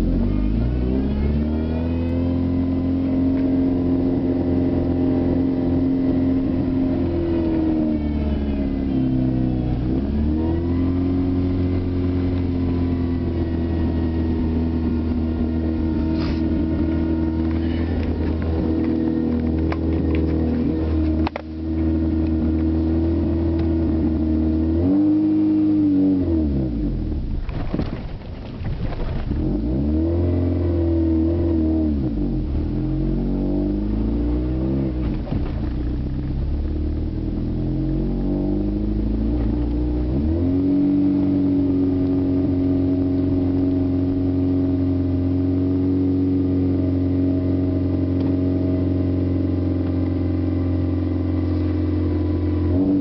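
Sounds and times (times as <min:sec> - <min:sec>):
car engine idling and revving: 0:00.0 - 0:53.0.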